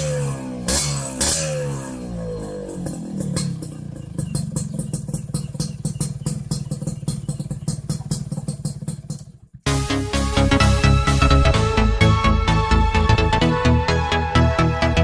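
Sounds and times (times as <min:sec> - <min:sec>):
two-stroke engine idling: 0:00.0 - 0:09.8
electronic dance music: 0:09.7 - 0:15.0.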